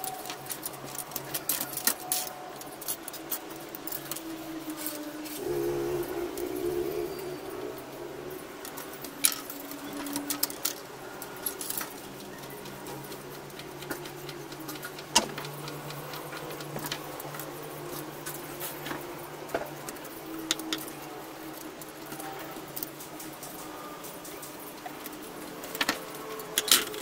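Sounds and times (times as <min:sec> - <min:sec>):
metal parts clicking and clinking: 0:00.0 - 0:05.4, 0:20.5 - 0:27.0
steady low hum: 0:05.4 - 0:09.7.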